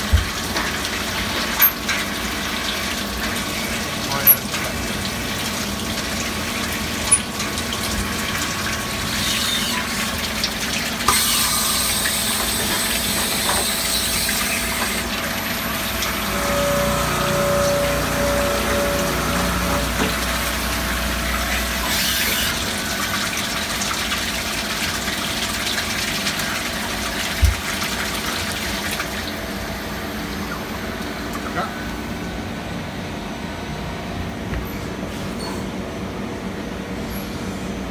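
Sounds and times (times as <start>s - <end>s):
cutting oil gushing: 0.0s - 32.4s
lathe cutting: 12.4s - 23.1s.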